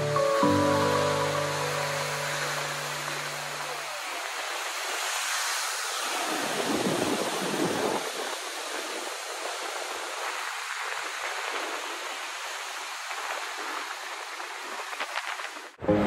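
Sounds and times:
ocean swell surging against rocks: 0.3 - 9.2.

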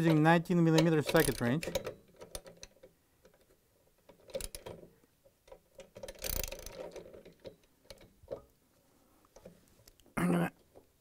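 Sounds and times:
ratchet wrench clicking: 6.0 - 7.0.

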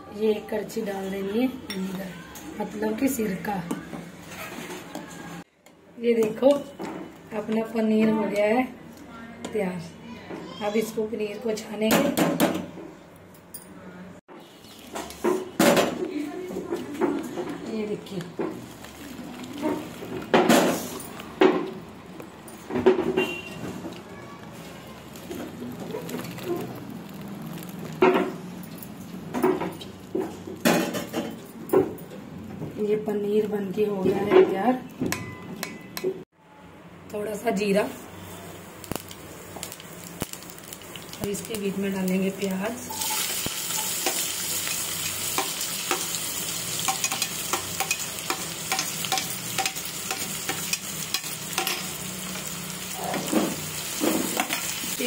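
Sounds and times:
onions sizzling in hot oil: 24.5 - 28.0, 38.5 - 55.0.

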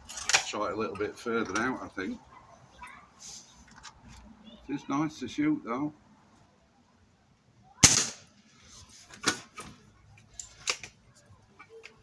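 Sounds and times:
air rifle shot: 7.8 - 8.3.

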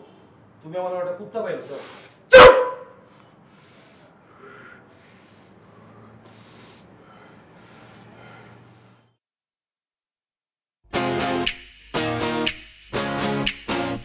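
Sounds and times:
soft breath sounds: 3.1 - 9.2.

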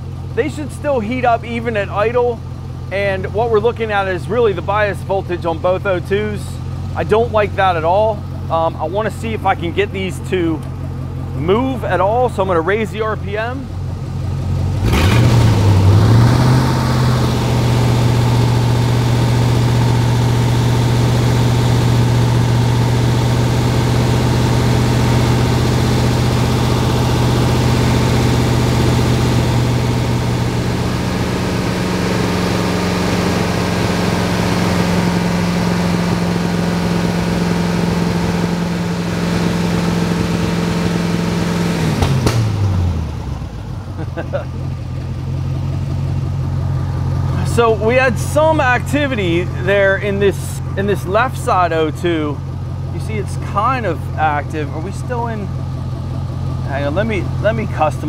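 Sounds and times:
car engine revving: 0.0 - 58.0.

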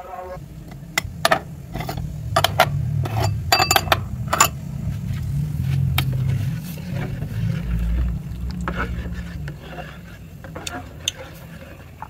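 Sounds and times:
steady low rumble: 0.1 - 12.0
glass bowls clinking: 1.0 - 4.6.

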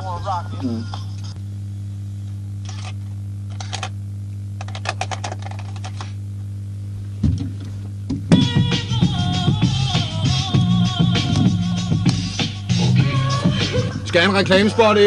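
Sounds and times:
low electrical hum: 0.0 - 15.0
quick clicks and rattles: 4.6 - 6.1.

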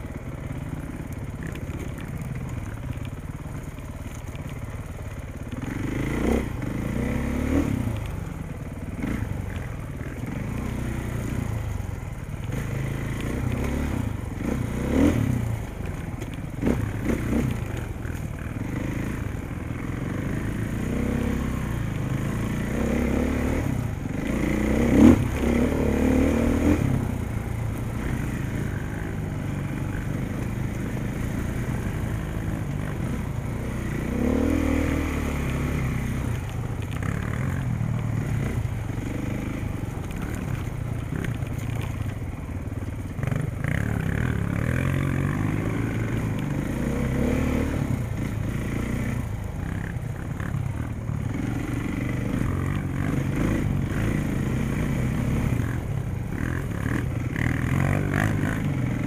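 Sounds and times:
dirt bike engine revving: 5.5 - 8.0, 8.9 - 42.0, 43.2 - 59.0.

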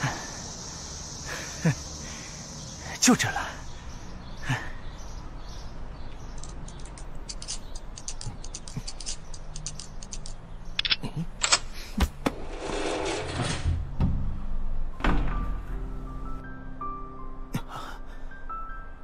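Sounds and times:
lock picking metallic clicks: 6.1 - 11.7
lock clacks: 6.2 - 11.7
cable lock rattling: 6.3 - 11.6.

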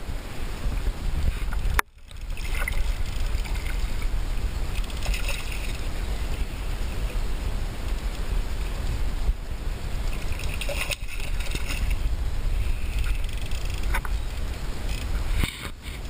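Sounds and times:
wind rumbling on microphone: 0.0 - 16.0
fish splashing at surface: 4.7 - 5.9, 10.1 - 12.0.

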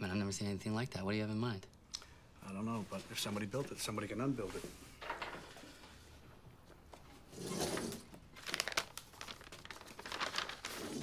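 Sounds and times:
soft rustling: 2.5 - 7.2.

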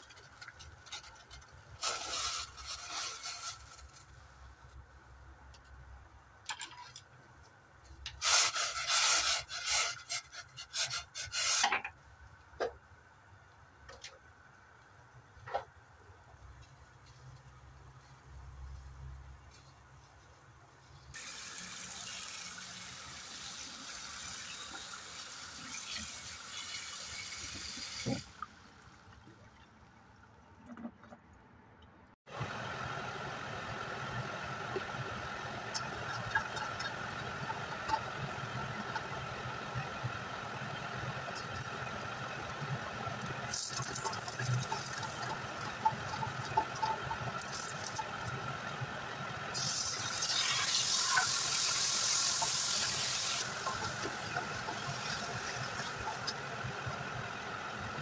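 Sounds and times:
garlic sizzling in hot oil: 21.2 - 28.3, 43.4 - 48.6, 49.5 - 58.0
gas stove burner running: 32.3 - 58.0.

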